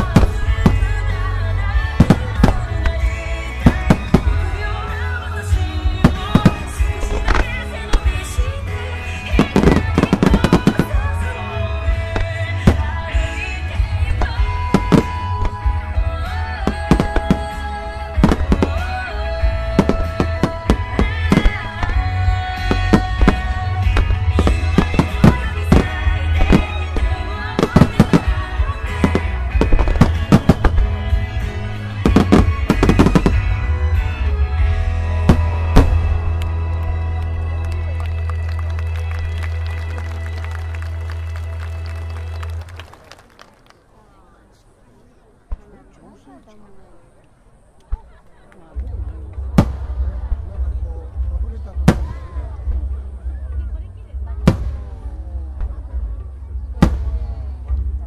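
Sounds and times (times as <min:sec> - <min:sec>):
fireworks bursting with sharp bangs: 0:00.0 - 0:36.7, 0:49.3 - 0:58.0
music: 0:00.0 - 0:43.4, 0:48.8 - 0:58.0.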